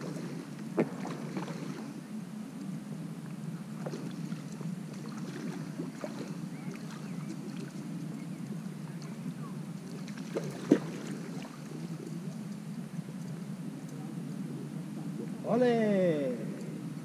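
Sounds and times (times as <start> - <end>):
wind rumble on microphone: 0.0 - 17.0
faint ticks: 12.0 - 14.4.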